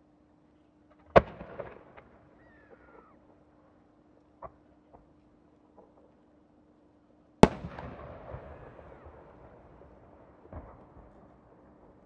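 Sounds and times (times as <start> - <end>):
rolling echo: 1.0 - 3.2, 7.4 - 12.0.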